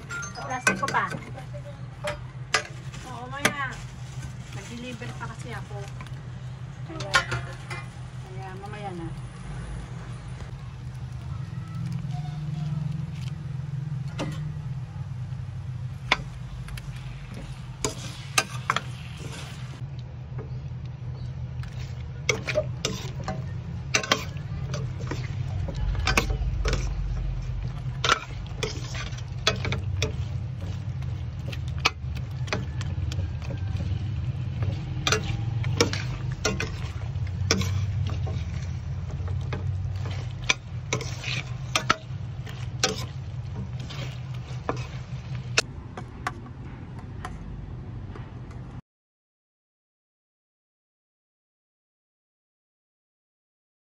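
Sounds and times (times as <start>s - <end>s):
low hum: 0.0s - 48.8s
metal spoon scraping a pan: 15.8s - 19.8s, 21.6s - 45.7s.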